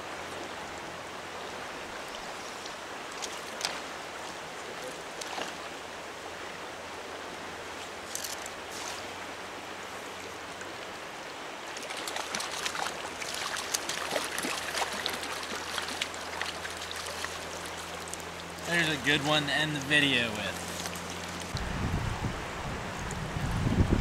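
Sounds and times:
water rushing: 0:00.0 - 0:24.0
fish splashing at surface: 0:11.8 - 0:18.3.

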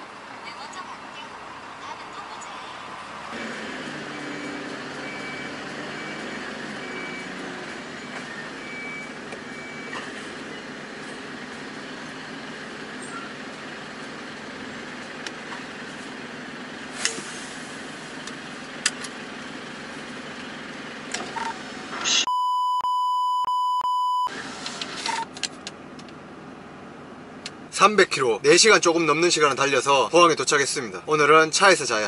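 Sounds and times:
truck cab hum: 0:00.0 - 0:32.0
beep tone: 0:21.4 - 0:24.3.

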